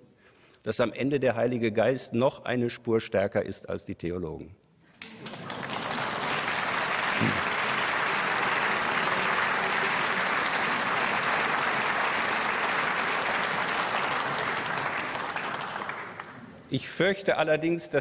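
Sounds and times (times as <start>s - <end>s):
audience applauding: 5.0s - 16.6s.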